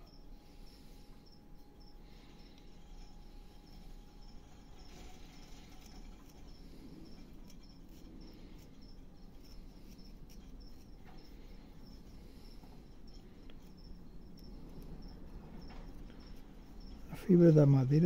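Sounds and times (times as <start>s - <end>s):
cricket chirping: 0.0s - 18.0s
knife whittling wood: 2.5s - 17.4s.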